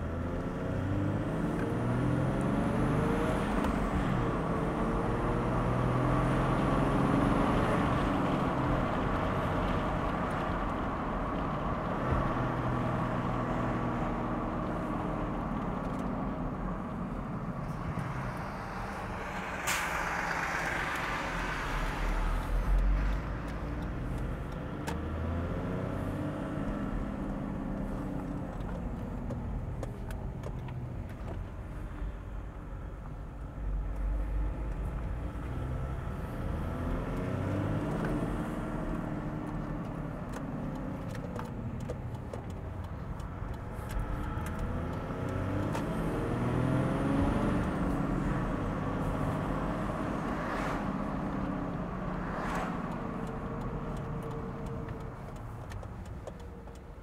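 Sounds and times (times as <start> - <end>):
diesel engine accelerating: 0.0 - 57.0
sharp hiss: 19.1 - 22.3.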